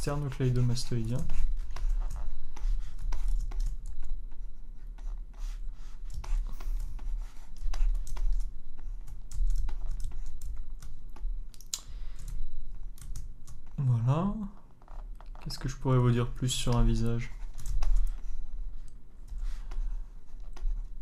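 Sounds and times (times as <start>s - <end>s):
keyboard keys clicking: 0.0s - 5.1s, 6.0s - 13.8s
low electrical hum: 0.0s - 21.0s.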